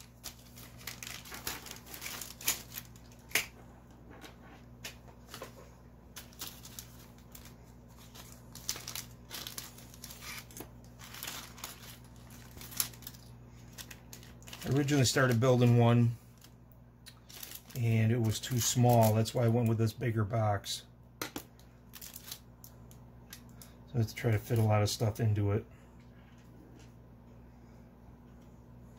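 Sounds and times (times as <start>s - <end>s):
plastic bags crinkling: 0.0s - 3.6s, 5.2s - 19.8s, 21.6s - 25.0s.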